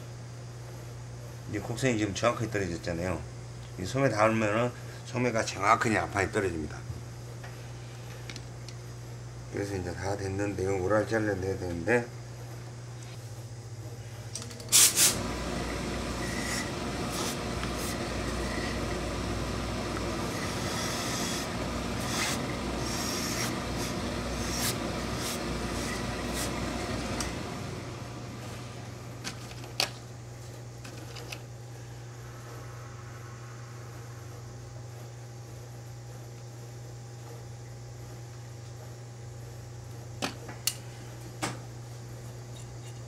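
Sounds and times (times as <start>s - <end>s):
steam iron rubbing hiss: 14.7s - 27.3s.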